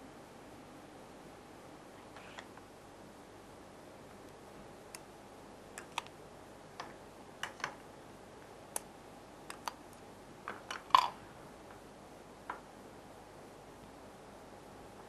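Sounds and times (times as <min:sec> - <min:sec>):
makeup tools clicking and tapping: 0:06.8 - 0:07.8.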